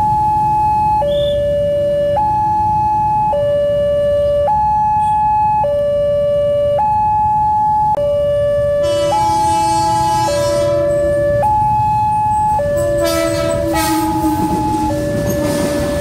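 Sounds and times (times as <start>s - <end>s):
two-tone level crossing alarm: 0.0s - 16.0s
electric train approaching: 8.8s - 16.0s.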